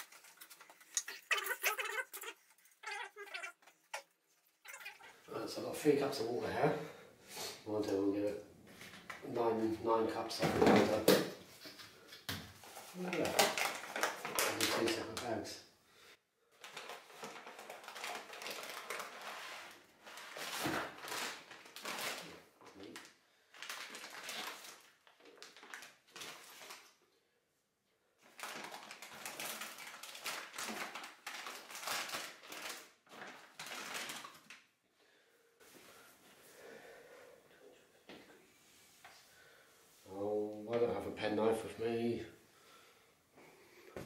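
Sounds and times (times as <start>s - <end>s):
plastic bags crinkling: 0.0s - 4.1s, 12.7s - 15.4s, 16.5s - 27.0s, 28.2s - 34.6s.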